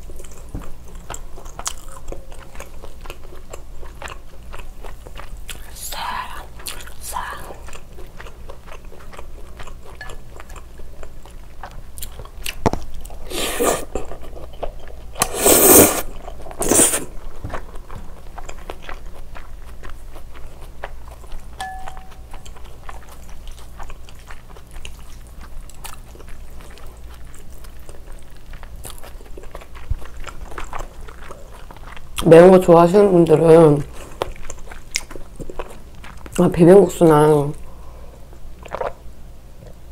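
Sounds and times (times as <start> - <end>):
wet chewing: 0.0 - 32.6, 33.2 - 36.5, 38.6 - 39.0
slurping noodles: 15.2 - 17.1.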